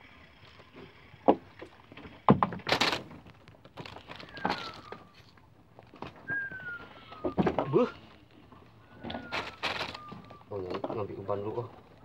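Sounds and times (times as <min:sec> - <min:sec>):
thin falling whistle: 0:04.1 - 0:05.3, 0:06.2 - 0:08.0, 0:08.9 - 0:10.6.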